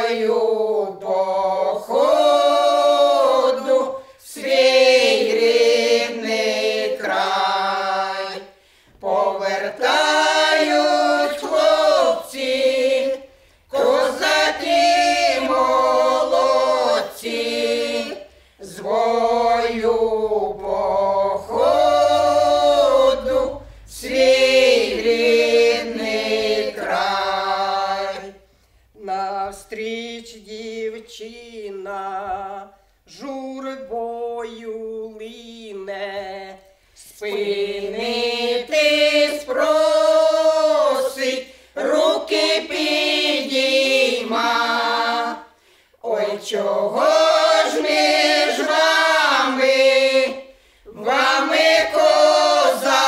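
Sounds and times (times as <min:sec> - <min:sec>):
women singing a cappella: 0:00.0 - 0:53.0.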